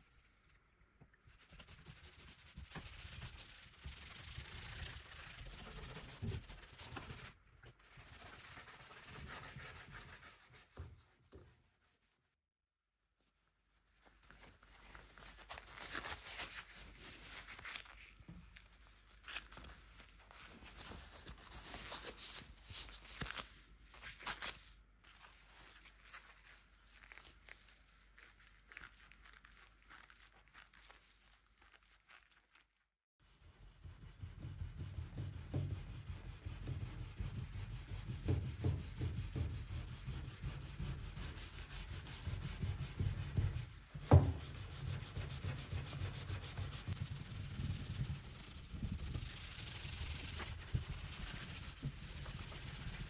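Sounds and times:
gloves and steel wool rustling: 0:13.7 - 0:53.0
bristle brush scrubbing wood: 0:33.4 - 0:53.0.

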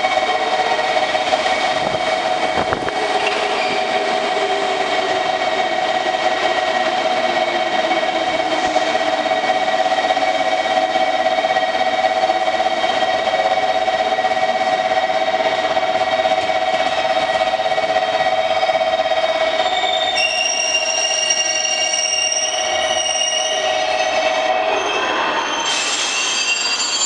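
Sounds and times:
electric train whine: 0:00.0 - 0:27.0
high brake squeal: 0:03.1 - 0:04.0, 0:19.6 - 0:27.0.

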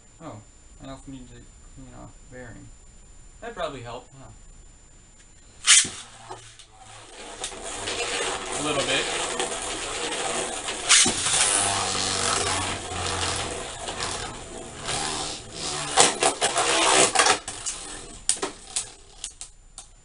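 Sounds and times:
spinning tops whirring: 0:05.6 - 0:19.4.

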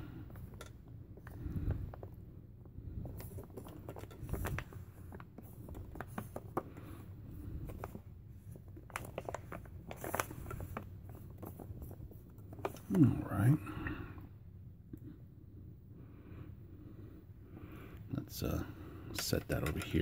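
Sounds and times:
foil pouch crinkling: 0:08.8 - 0:12.9.

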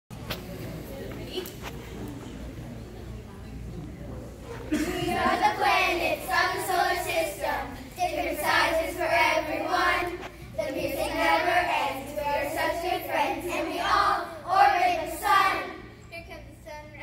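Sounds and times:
children singing in unison: 0:04.7 - 0:15.9.

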